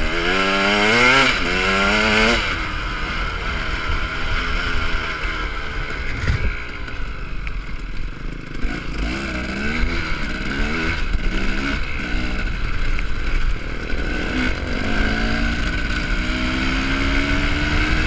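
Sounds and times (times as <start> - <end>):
dirt bike engine accelerating: 0.0 - 18.0
wind rumbling on microphone: 5.9 - 6.8.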